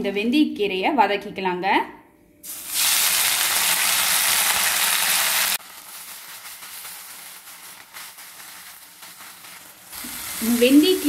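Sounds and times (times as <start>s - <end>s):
frying sizzle: 2.4s - 11.0s
wet leaves sizzling in hot oil: 2.4s - 11.0s.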